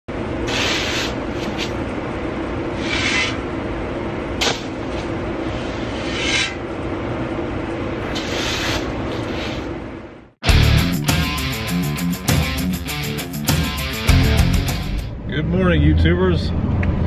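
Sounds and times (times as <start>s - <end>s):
low machine hum: 0.1s - 10.4s
shovel scraping gravel: 2.8s - 3.4s.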